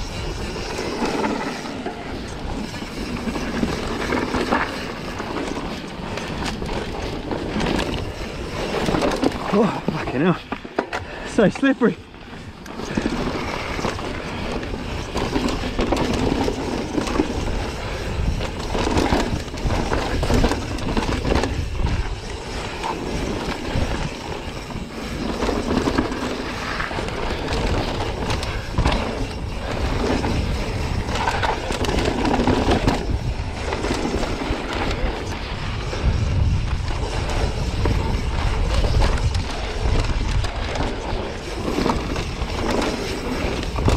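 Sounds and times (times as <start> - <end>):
bike tyres rolling over dirt: 0.0 - 43.9.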